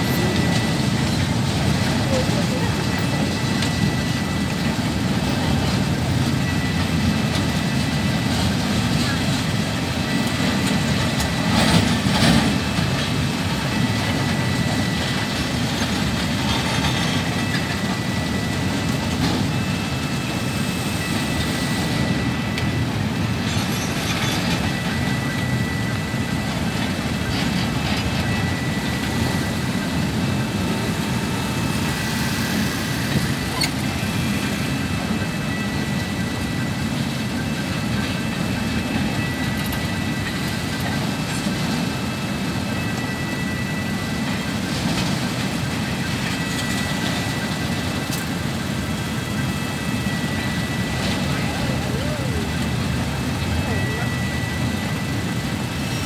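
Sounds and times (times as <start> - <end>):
train wheels rumbling on rails: 0.0 - 56.0
faint high tone: 51.2 - 52.6, 53.6 - 54.8.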